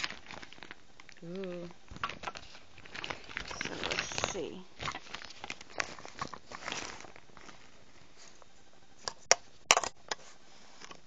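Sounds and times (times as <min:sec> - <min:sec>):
fabric rustling: 0:01.4 - 0:08.6.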